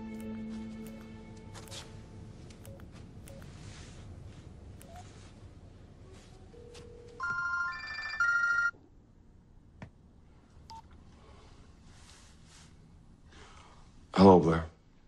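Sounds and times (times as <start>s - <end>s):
mobile phone ringtone: 6.6s - 8.7s.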